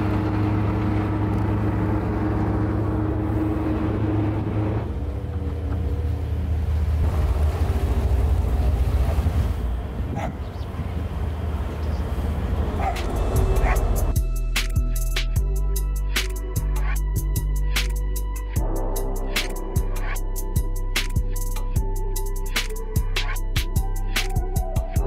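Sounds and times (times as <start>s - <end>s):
yacht engines droning: 0.0s - 24.8s
wind on microphone: 6.9s - 14.1s.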